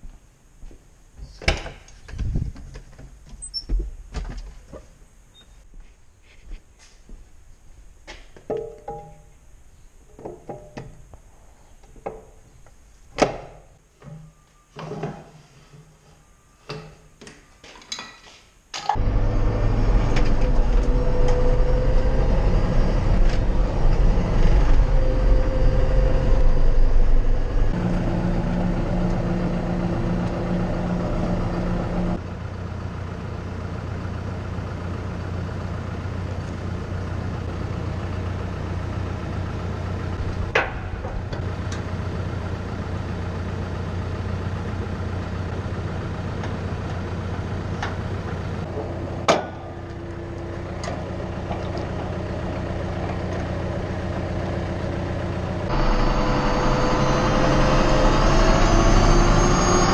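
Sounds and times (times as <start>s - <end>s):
tractor diesel engine running: 18.9s - 59.9s.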